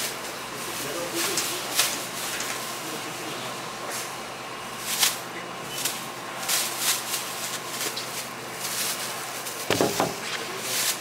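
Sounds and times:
thump: 0:09.7 - 0:10.3.

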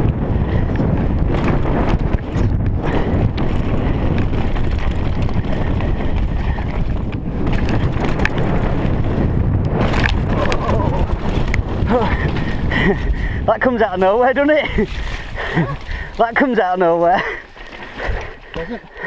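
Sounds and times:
wind buffeting microphone: 0:00.0 - 0:19.0
bike clicks and rattles: 0:00.1 - 0:13.4
bike tyres on gravel: 0:00.1 - 0:16.5.

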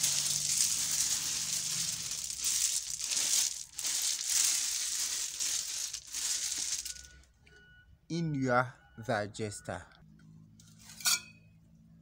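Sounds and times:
gravel scraping and rattling: 0:00.0 - 0:07.1.

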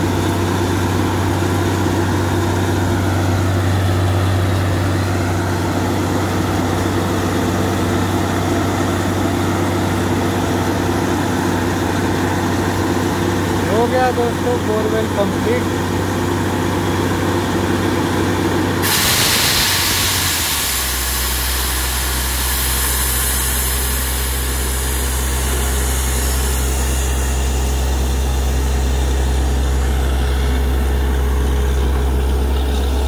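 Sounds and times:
drilling rig engine running: 0:00.0 - 0:33.0
loud rushing hiss of water: 0:18.8 - 0:26.6.

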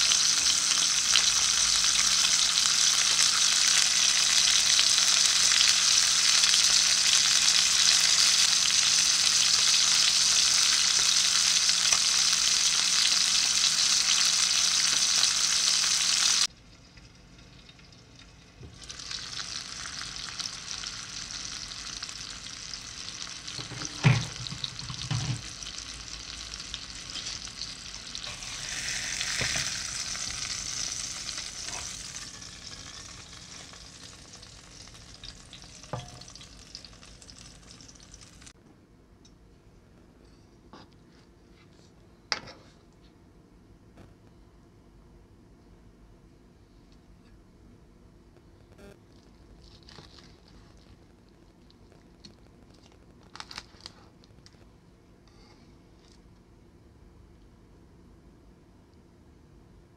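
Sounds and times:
fish sizzling in hot oil: 0:00.0 - 0:16.5, 0:17.2 - 0:38.5.

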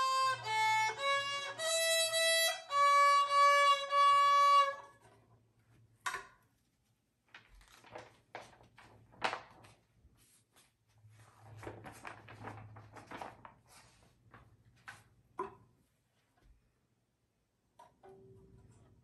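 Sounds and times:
paper sheet music rustling: 0:06.6 - 0:15.2.

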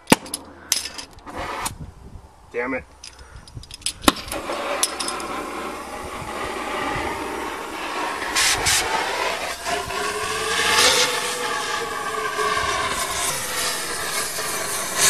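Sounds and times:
cutting torch flame hissing: 0:01.2 - 0:01.9, 0:04.0 - 0:15.0.

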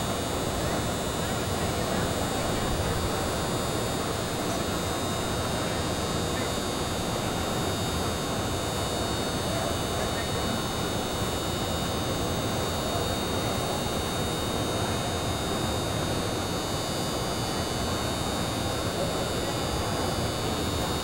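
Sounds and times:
faint murmur of voices: 0:00.0 - 0:21.0
indoor arena background noise: 0:00.0 - 0:21.0.

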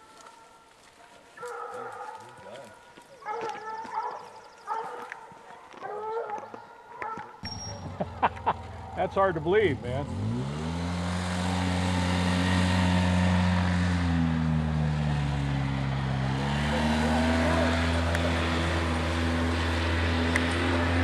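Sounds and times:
atv engine running: 0:07.4 - 0:21.0.

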